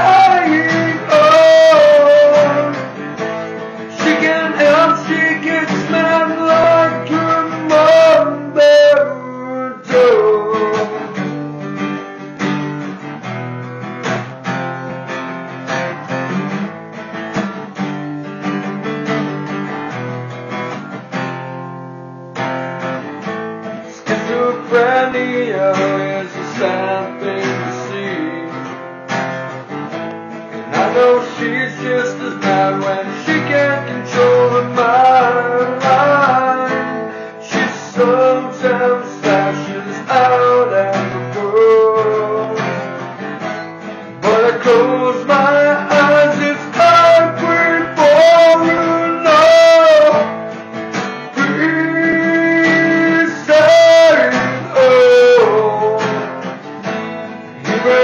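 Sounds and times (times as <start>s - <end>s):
man singing: 0.0s - 11.6s, 23.7s - 28.9s, 30.6s - 58.0s
acoustic guitar strumming: 0.0s - 58.0s.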